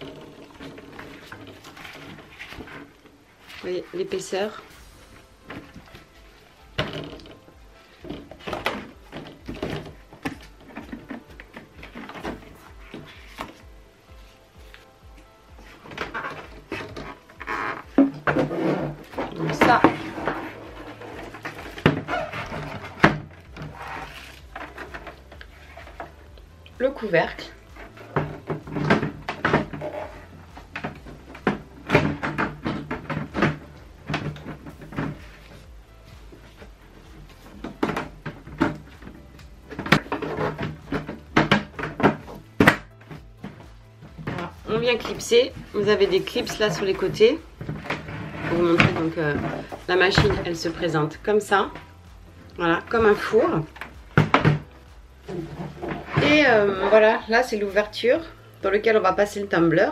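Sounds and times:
plastic knocks and clicks: 27.8s - 35.4s.

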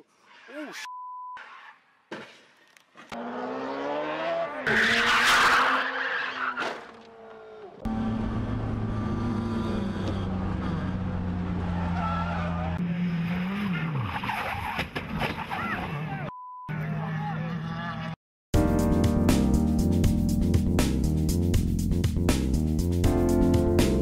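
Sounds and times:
race car engine from inside cabin: 7.6s - 14.0s.

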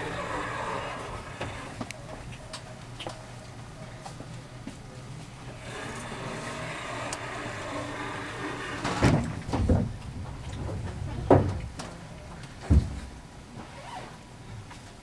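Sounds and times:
train carriage hum: 0.0s - 13.6s
heavy knocks and thumps: 8.8s - 12.0s, 12.6s - 13.2s.

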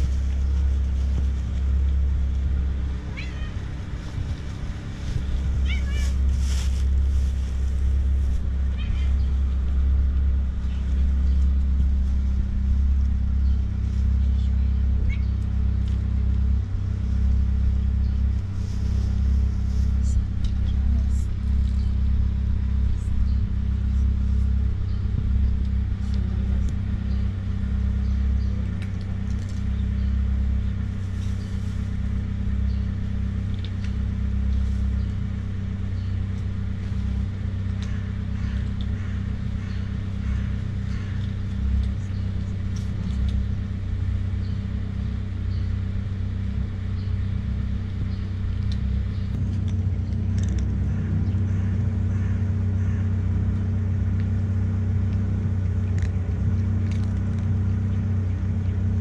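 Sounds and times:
low mechanical rumble: 0.0s - 59.0s
cats crunching dry kibble: 25.6s - 59.0s.

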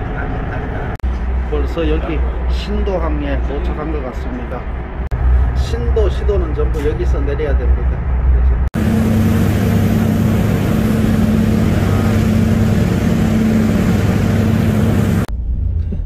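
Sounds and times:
ship engines droning: 0.0s - 15.3s
churning propeller wake: 8.8s - 15.3s.

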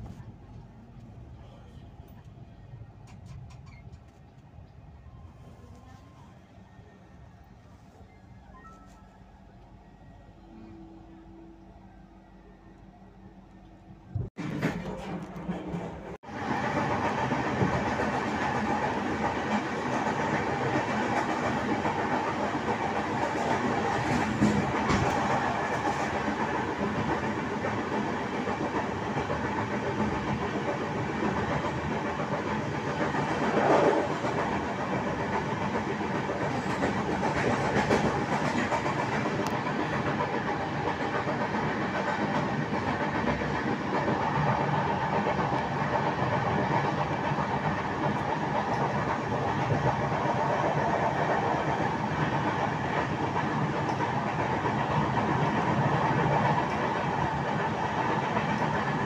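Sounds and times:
train wheels rolling on track: 13.6s - 59.0s.

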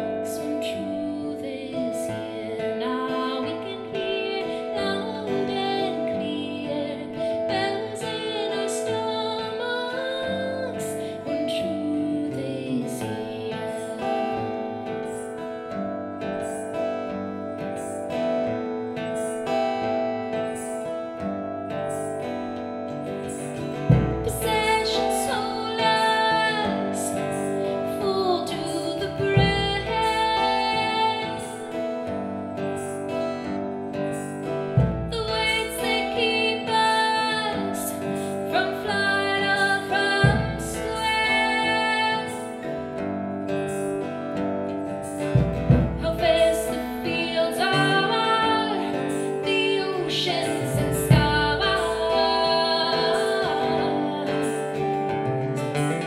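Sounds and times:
acoustic guitars: 0.0s - 56.0s
woman singing: 0.0s - 56.0s
deep drum thump: 23.9s - 24.4s.

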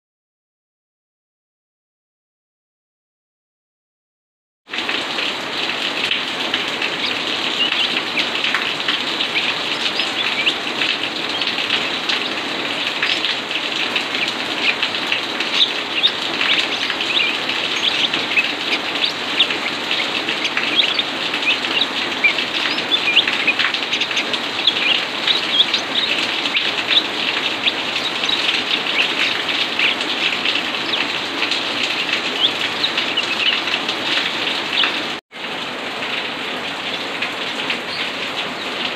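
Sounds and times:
steady rain hiss: 4.8s - 38.9s
bird chirps: 6.8s - 35.1s.

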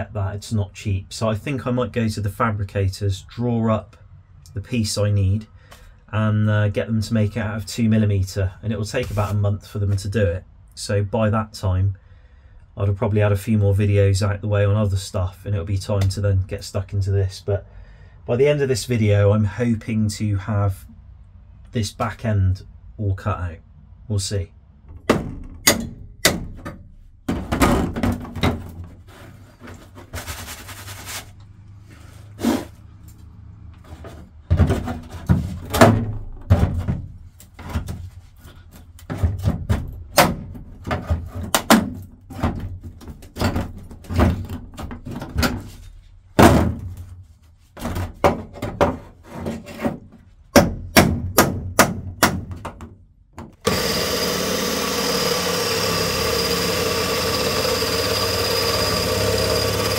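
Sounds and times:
hammer striking chisel on metal: 25.1s - 26.8s
electric drill drilling metal: 53.6s - 59.9s.

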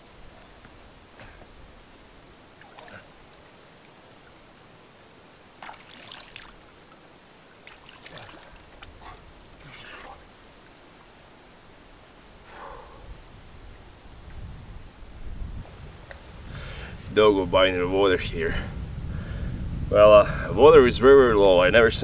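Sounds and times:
light splashes of river water: 0.0s - 11.6s
steady soft hiss: 0.0s - 21.9s.

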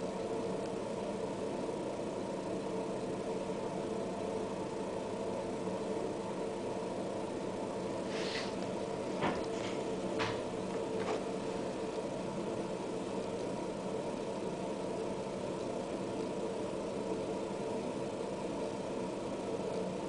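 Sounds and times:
mechanical hum: 0.0s - 20.0s.

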